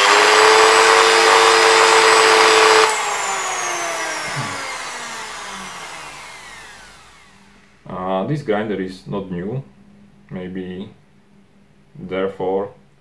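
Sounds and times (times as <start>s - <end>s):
rotary tool motor whining: 0.0s - 7.8s.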